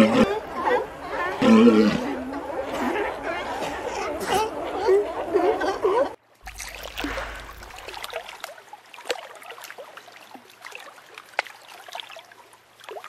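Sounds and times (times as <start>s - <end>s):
small splashes and drips: 6.4s - 13.0s
water lapping against rock: 6.4s - 13.0s.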